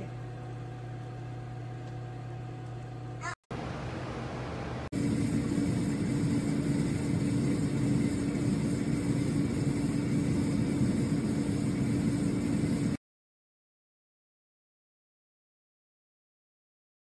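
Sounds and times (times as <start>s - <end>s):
air fryer fan whirring: 0.0s - 13.0s.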